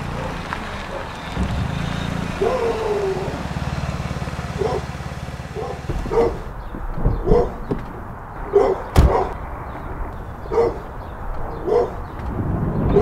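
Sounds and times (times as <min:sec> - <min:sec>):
dog barking: 0:00.0 - 0:01.2, 0:02.3 - 0:03.6, 0:04.3 - 0:06.6, 0:07.2 - 0:07.7, 0:08.4 - 0:09.4, 0:10.4 - 0:12.1.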